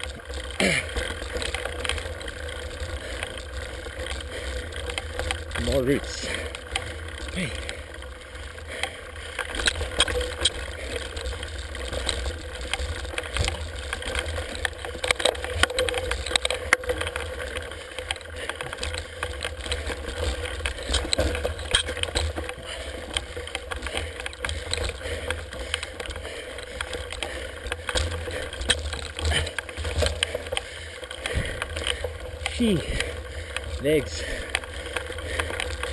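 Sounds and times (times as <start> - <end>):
bike clicks and rattles: 0.0 - 35.9
low rumble of bike riding: 0.0 - 35.9.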